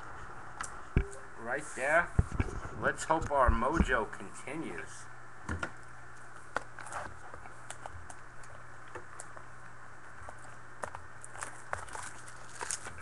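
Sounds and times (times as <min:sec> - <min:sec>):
cellophane crackling and crinkling: 0:10.0 - 0:13.0.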